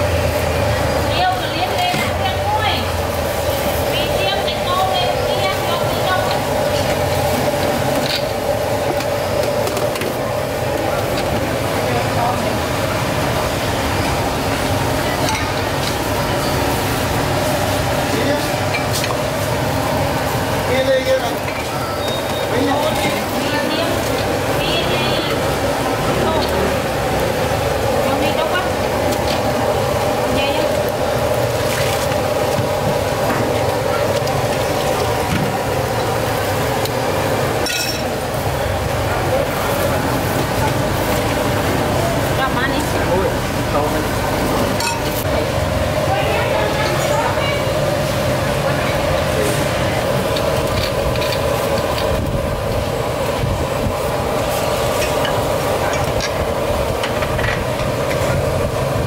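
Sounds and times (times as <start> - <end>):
gas burner roaring: 0.0 - 59.0
machine hum and rush: 22.5 - 59.0
utensils and bowls clinking: 36.8 - 38.3, 44.6 - 45.3.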